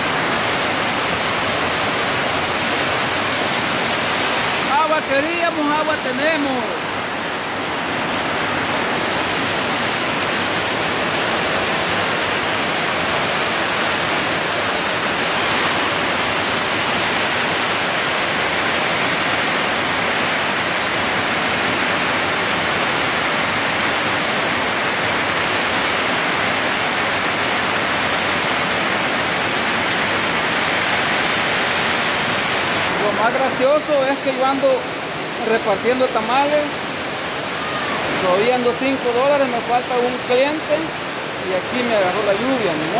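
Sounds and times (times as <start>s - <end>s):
heavy rain pouring: 0.0s - 42.9s.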